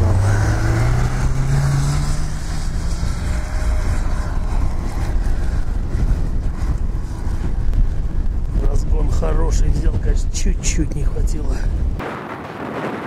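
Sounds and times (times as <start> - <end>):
car engine revving: 0.0 - 9.2
wind on microphone: 0.0 - 13.0.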